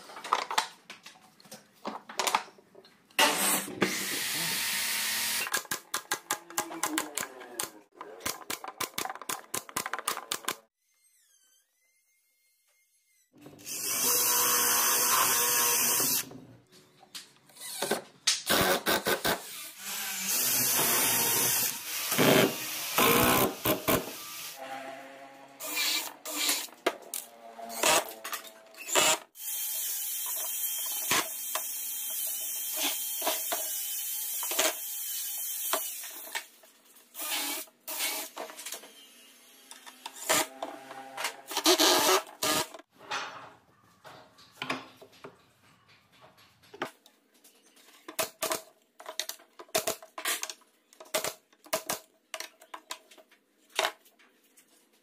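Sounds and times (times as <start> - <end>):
cordless drill running: 3.9 - 5.5.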